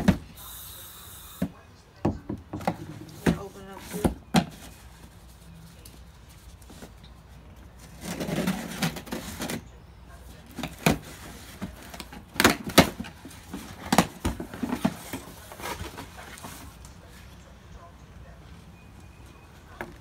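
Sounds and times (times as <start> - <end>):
cardboard rustling and scraping: 2.6 - 17.3.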